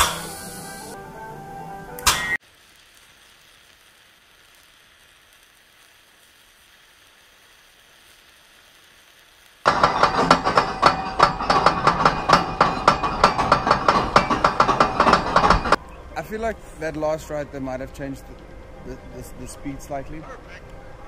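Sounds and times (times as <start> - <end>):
faint hiss: 2.4 - 9.7
roller coaster chain lift clacking: 9.7 - 15.8.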